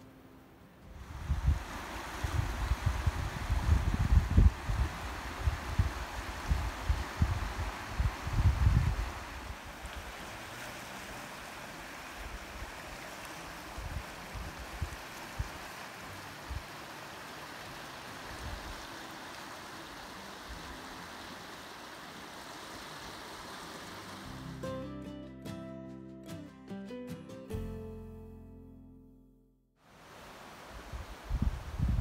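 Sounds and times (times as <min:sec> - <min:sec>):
water rushing over rocks: 0:01.0 - 0:24.6.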